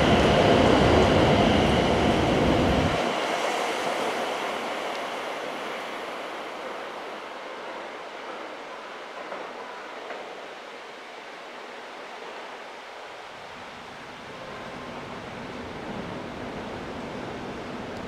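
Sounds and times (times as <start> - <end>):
train cars rumbling past: 0.0 - 10.4
rushing noise of departing train: 0.0 - 18.0.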